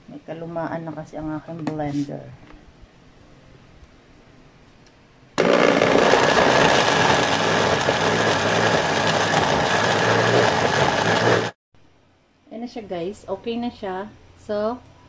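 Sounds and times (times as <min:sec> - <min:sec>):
electric blender running: 0:05.4 - 0:11.6.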